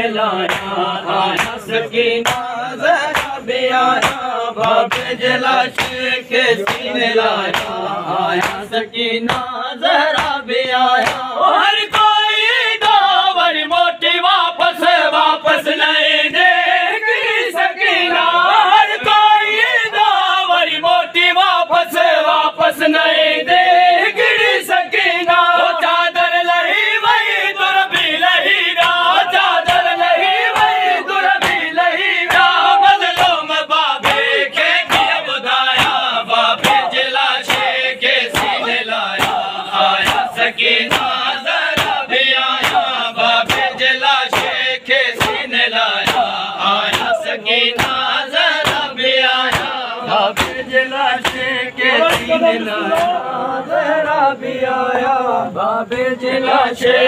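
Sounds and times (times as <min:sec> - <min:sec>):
crowd of men chanting: 0:00.0 - 0:57.0
hands slapping chests: 0:00.4 - 0:11.3, 0:11.9 - 0:12.2, 0:28.8 - 0:53.2.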